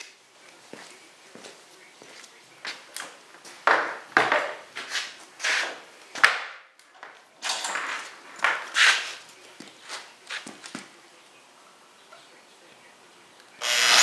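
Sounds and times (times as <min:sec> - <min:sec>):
scrapes and rustles: 0:04.7 - 0:06.2, 0:07.1 - 0:11.0.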